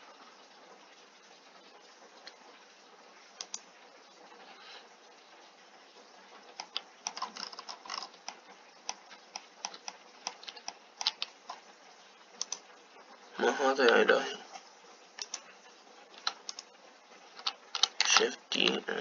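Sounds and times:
keyboard and mouse clicking: 6.6s - 11.6s, 12.4s - 12.6s, 17.4s - 18.3s.

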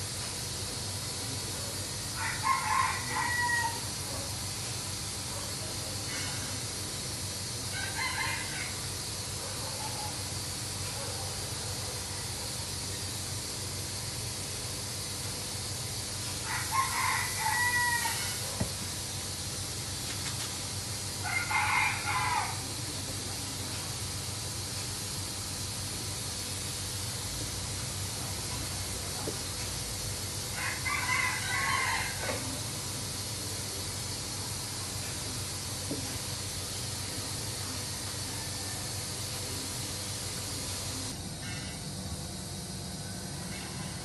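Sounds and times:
steady background hiss: 0.0s - 44.0s
rooster crowing: 2.1s - 4.2s, 7.7s - 9.0s, 16.4s - 18.7s, 21.2s - 22.8s, 30.5s - 32.7s, 38.2s - 39.1s.

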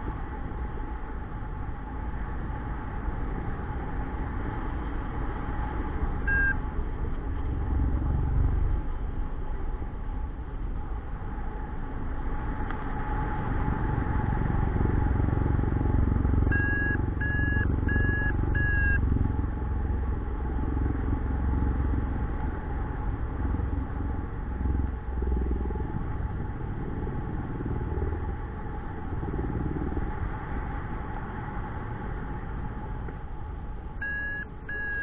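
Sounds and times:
short electronic beeps: 6.3s - 6.6s, 16.5s - 19.0s, 34.0s - 35.0s.

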